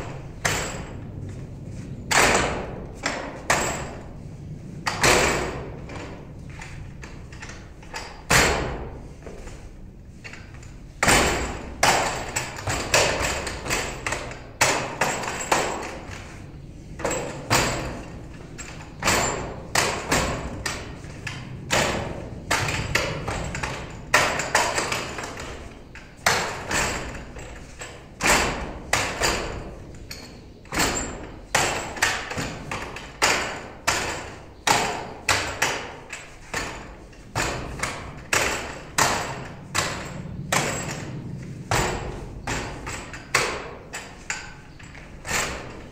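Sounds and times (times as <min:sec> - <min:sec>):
arms striking wooden dummy: 0:11.0 - 0:16.2, 0:17.0 - 0:45.9.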